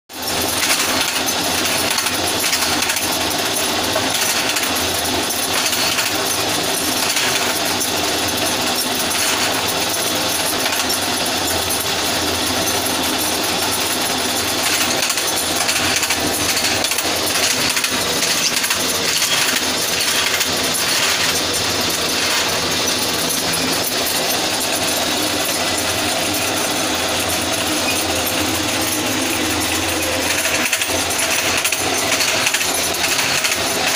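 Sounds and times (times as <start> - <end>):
slicer machine clattering: 0.1 - 33.9
machine low hum: 15.6 - 33.9.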